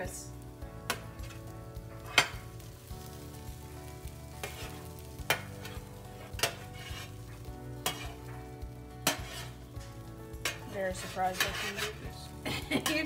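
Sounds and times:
tongs knocking metal pan: 4.4s - 7.1s, 10.4s - 12.0s
broccoli scraped off baking sheet: 10.9s - 12.2s.

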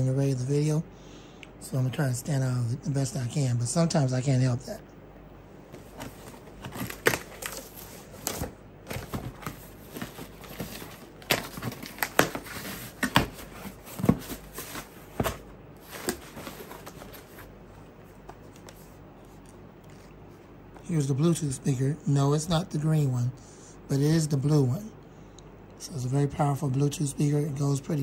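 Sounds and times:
packaging crackling: 5.8s - 17.5s.

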